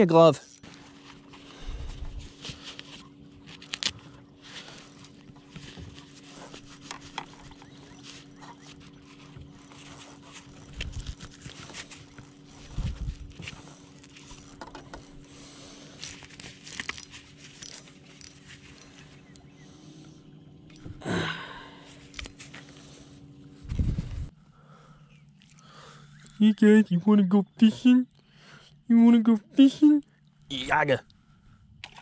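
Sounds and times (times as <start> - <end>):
steady low hum: 0.0 - 32.0
fabric glove rustling and scraping: 0.6 - 19.3, 21.9 - 24.3.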